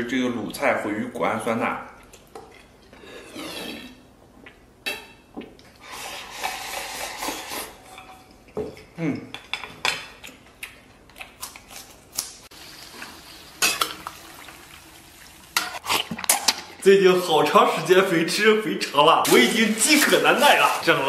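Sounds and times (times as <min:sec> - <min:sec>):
chopsticks scraping a bowl: 0:03.0 - 0:04.0.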